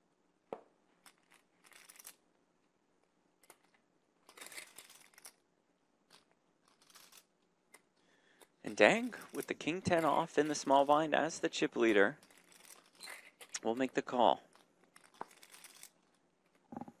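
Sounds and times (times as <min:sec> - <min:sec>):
poker chips clicking: 0:01.0 - 0:02.2, 0:03.4 - 0:05.4, 0:06.1 - 0:11.1, 0:11.9 - 0:16.6.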